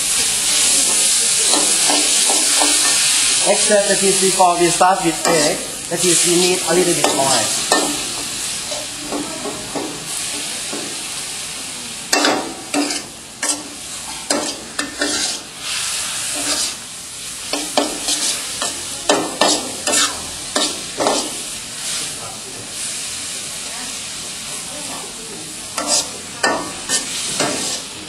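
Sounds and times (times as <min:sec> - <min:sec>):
noodles sizzling in wok: 0:00.0 - 0:28.0
metal spatula scraping wok: 0:00.8 - 0:09.0, 0:12.1 - 0:16.8, 0:17.4 - 0:22.0, 0:25.7 - 0:28.0.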